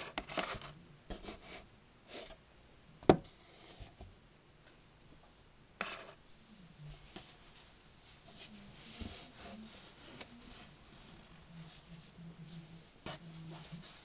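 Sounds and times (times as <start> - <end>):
faint background tv: 6.0 - 14.0.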